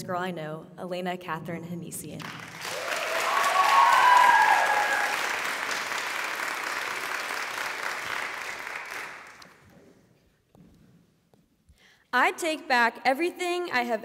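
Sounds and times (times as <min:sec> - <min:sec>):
audience applauding: 0:02.2 - 0:09.6
voices cheering: 0:02.6 - 0:05.7.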